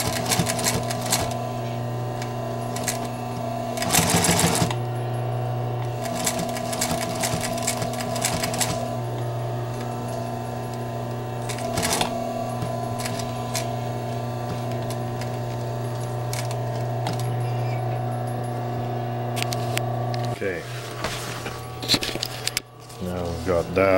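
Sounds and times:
sewing machine needle clattering: 0:00.0 - 0:01.4, 0:02.2 - 0:04.8, 0:06.0 - 0:09.0, 0:10.7 - 0:18.4
sewing machine ticks: 0:00.0 - 0:01.4, 0:03.8 - 0:04.8, 0:06.1 - 0:08.9
steady machine hum: 0:00.0 - 0:23.9.

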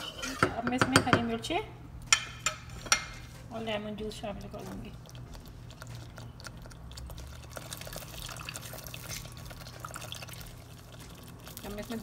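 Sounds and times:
low steady hum: 0:00.0 - 0:12.0
lemon juice dripping into pot: 0:04.4 - 0:12.0
thick sauce bubbling and popping: 0:04.4 - 0:12.0.

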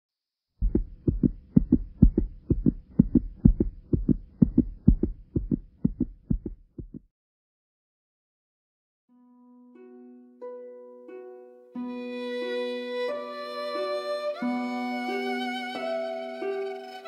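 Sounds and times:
heartbeat thumps: 0:00.6 - 0:07.1.

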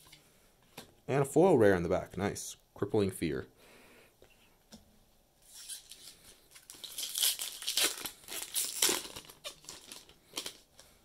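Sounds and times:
foil wrapper crinkling: 0:05.6 - 0:10.9.

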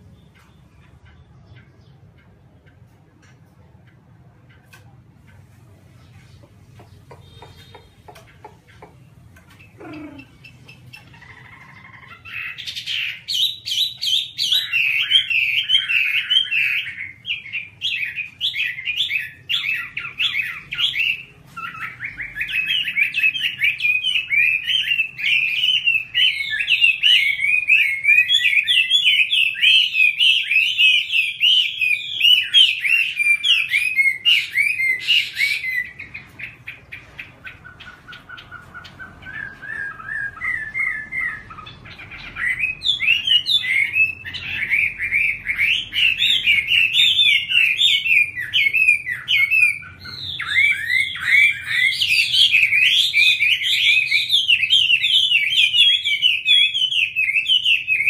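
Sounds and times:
bird singing whistled phrases: 0:12.3 - 0:36.5, 0:37.7 - 0:58.0.

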